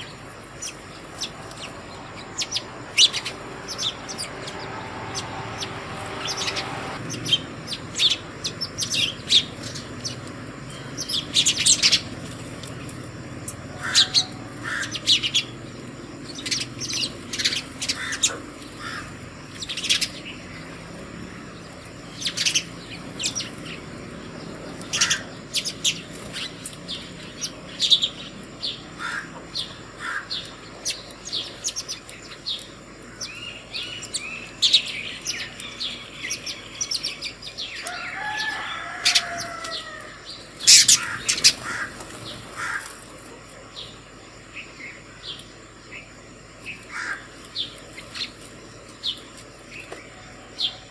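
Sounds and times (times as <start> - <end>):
sparrows chirping: 0.0 - 50.9.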